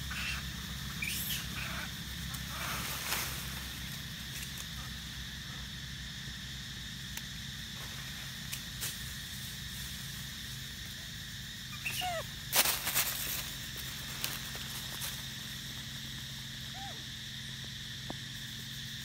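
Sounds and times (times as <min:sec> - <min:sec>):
crackling in dry leaf litter: 0:11.8 - 0:15.8.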